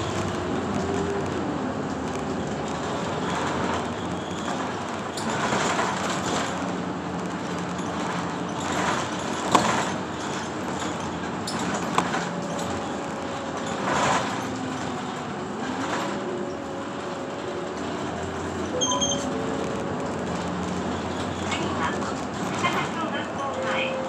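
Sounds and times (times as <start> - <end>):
bus engine whining: 0.0 - 24.0
road noise: 0.0 - 24.0
rattles and knocks: 1.9 - 18.7.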